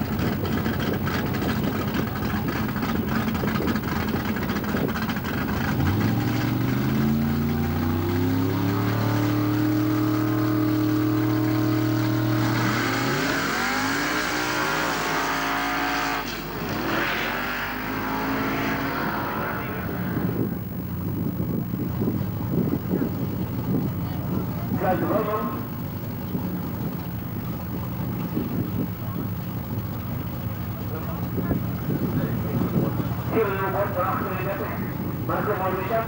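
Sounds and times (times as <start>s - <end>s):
drag car engine revving: 0.0s - 36.0s.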